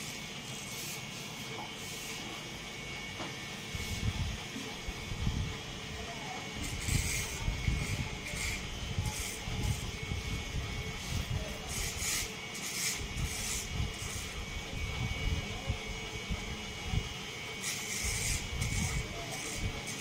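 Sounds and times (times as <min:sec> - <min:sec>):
trimmer rasping through hair: 0:00.0 - 0:01.2, 0:06.4 - 0:15.8, 0:17.5 - 0:20.0
electric hair trimmer humming: 0:06.4 - 0:16.8, 0:17.5 - 0:20.0.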